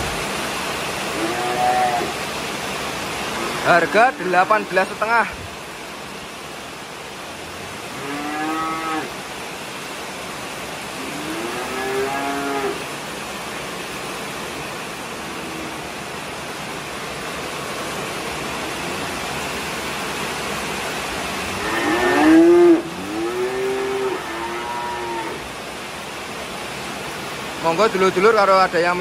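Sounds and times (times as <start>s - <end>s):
calves mooing: 1.1s - 2.1s, 7.9s - 9.1s, 11.0s - 12.8s, 21.5s - 25.4s.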